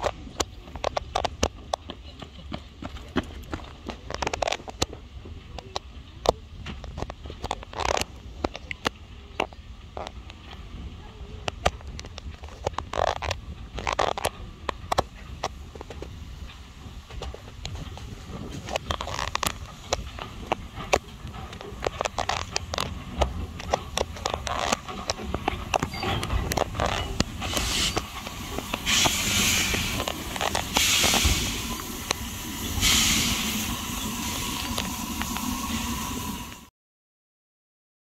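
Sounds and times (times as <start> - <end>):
locomotive wheels clicking and clanking: 0.0 - 36.6
steam hissing: 15.2 - 36.7.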